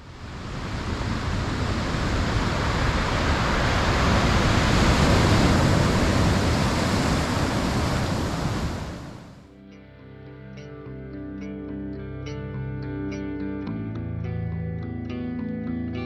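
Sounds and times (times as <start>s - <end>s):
rushing surf-like noise: 0.0s - 9.5s.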